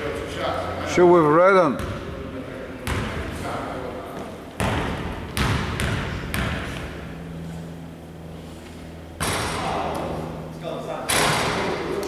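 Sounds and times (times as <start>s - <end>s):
basketball bouncing on hardwood: 4.6s - 6.6s.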